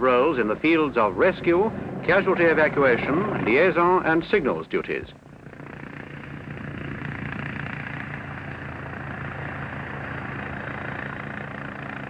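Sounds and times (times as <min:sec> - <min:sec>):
helicopter rotor and turbine noise: 0:00.0 - 0:12.0.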